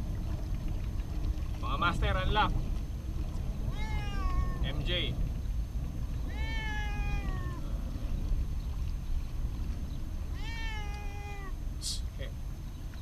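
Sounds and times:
cat meowing: 3.6 - 4.8, 6.2 - 7.8, 10.3 - 11.6.

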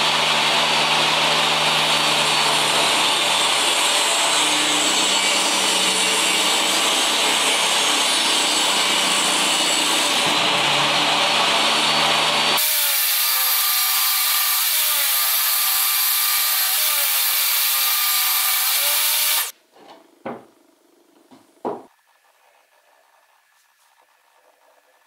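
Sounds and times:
table saw ripping wood: 0.0 - 19.5
wooden knocks: 19.8 - 20.5, 21.2 - 21.9.

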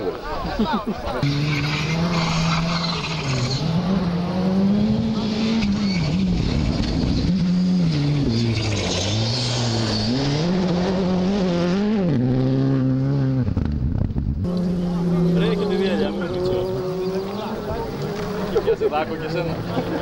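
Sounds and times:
car engine revving: 1.1 - 20.0.

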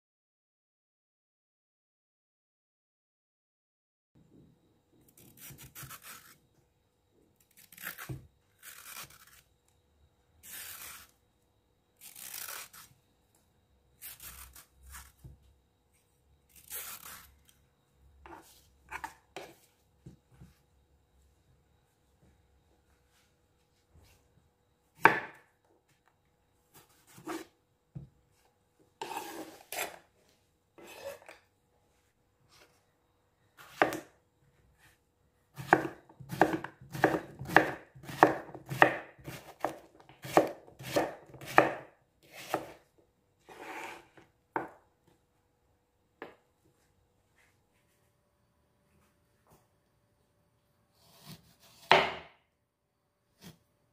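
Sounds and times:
knife cutting on a cutting board: 14.0 - 15.2, 18.2 - 19.6, 26.7 - 27.5, 29.0 - 30.0, 30.8 - 31.4, 33.6 - 34.1, 35.6 - 42.8, 43.5 - 44.2, 51.0 - 52.2.

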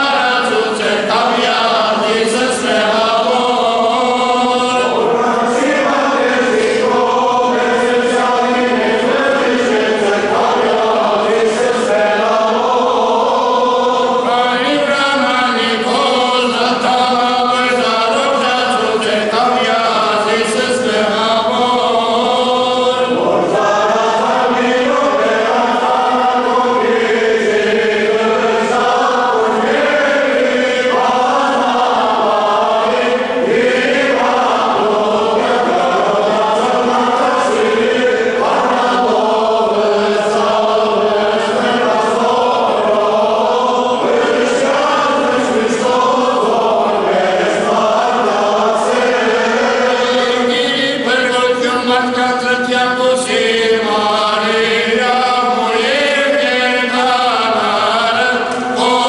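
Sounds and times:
choir chanting a hymn: 0.0 - 59.0.

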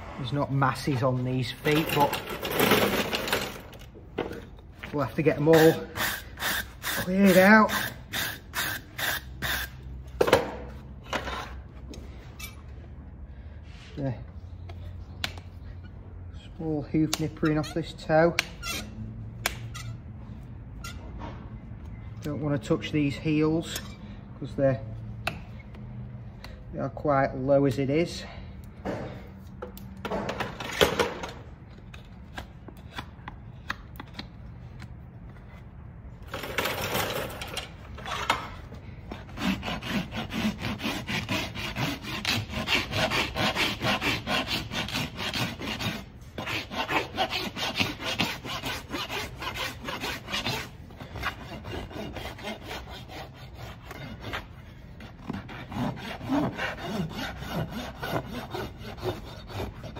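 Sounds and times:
rasp filing a horse's hoof: 5.2 - 10.0, 17.0 - 20.0, 39.1 - 59.9.

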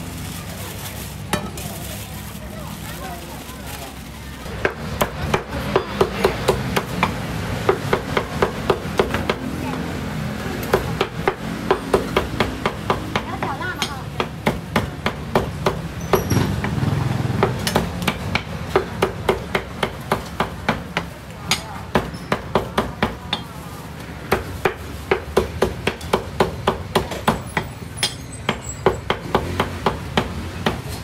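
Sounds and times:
cleaver chopping on wooden block: 24.3 - 30.9.

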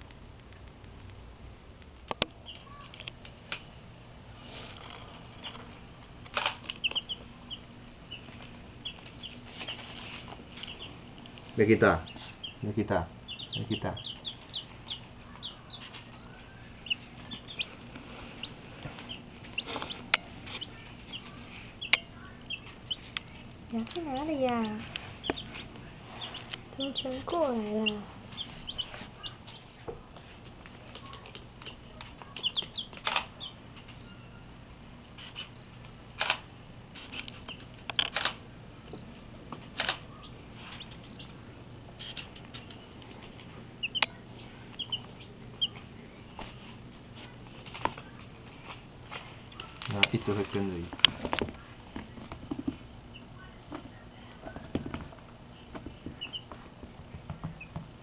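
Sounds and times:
baby chicks peeping: 0.0 - 58.0
knocks and rustles: 49.1 - 52.9, 53.7 - 58.0.

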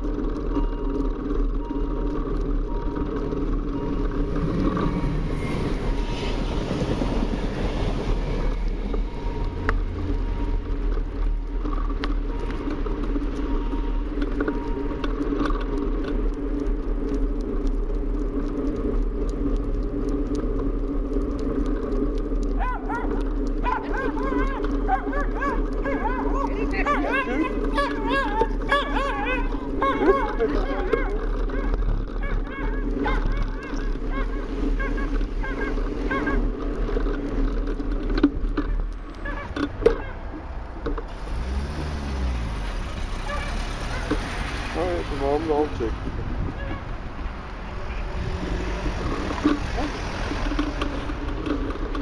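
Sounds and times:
vehicle engine rumbling: 0.0 - 52.0
small dog yapping: 22.6 - 36.4, 39.2 - 40.2, 46.6 - 46.9.

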